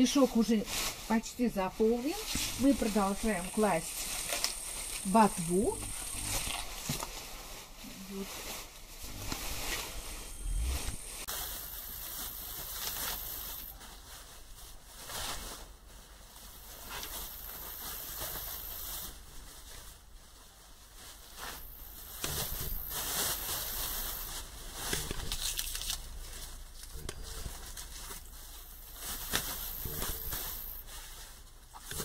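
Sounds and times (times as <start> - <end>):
plastic garbage bag crinkling: 0.0 - 32.0
rustling of leafy vegetables: 0.0 - 32.0.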